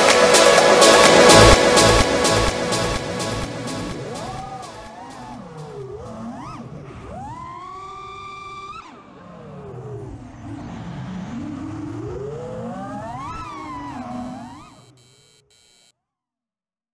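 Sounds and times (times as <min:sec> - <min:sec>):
quadcopter motors whining: 0:11.4 - 0:15.9.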